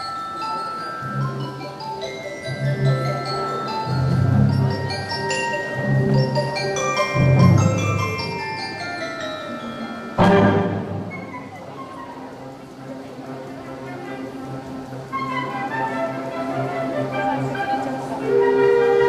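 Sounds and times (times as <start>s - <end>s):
ringing mallet percussion notes: 0.0s - 11.8s
wind band playing: 9.6s - 19.0s
percussion crash: 10.2s - 11.6s.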